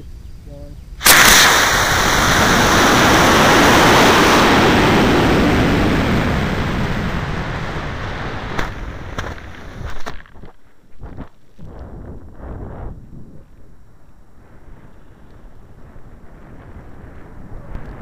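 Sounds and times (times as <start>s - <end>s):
wind noise: 0.9s - 18.0s
rocket motor rushing: 1.0s - 10.0s.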